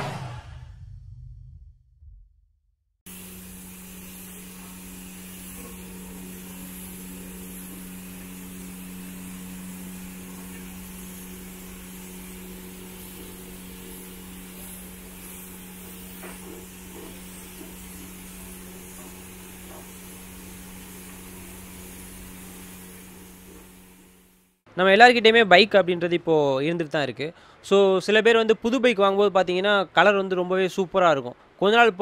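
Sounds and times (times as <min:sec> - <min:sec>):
machine hum: 0:03.1 - 0:24.5
constant hiss: 0:03.1 - 0:25.9.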